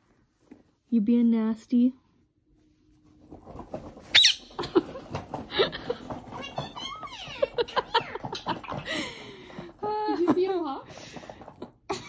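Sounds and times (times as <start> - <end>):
high whistled bird calls: 4.1 - 4.5
parakeet squawk: 4.1 - 4.5.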